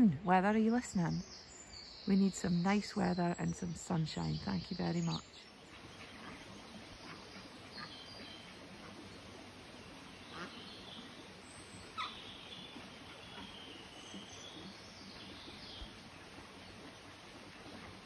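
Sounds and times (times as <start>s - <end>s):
ducklings peeping: 4.8s - 18.0s.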